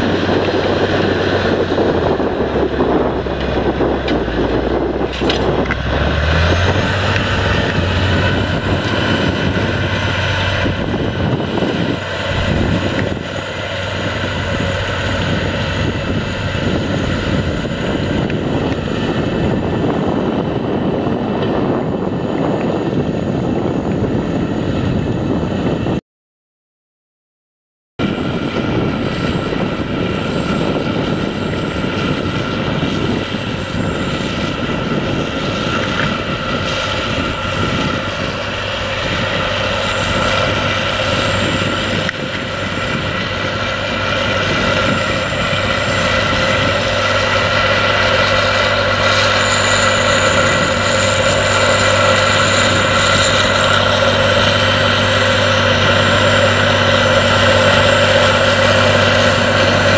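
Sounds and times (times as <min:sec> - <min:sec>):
tractor diesel engine under load: 0:00.0 - 0:25.8, 0:28.0 - 0:59.9.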